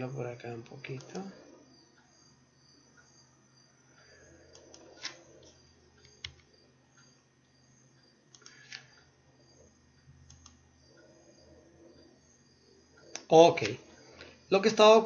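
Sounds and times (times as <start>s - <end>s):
low steady hum: 0.0s - 15.0s
mouse and keyboard clicks: 4.5s - 6.5s, 8.3s - 9.0s, 10.2s - 10.6s.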